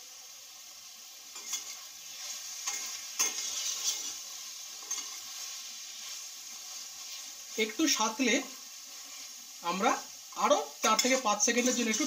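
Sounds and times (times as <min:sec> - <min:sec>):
masala sizzling in a pot: 0:00.0 - 0:12.0
utensil scraping and knocking pot: 0:02.6 - 0:04.2, 0:04.8 - 0:05.3.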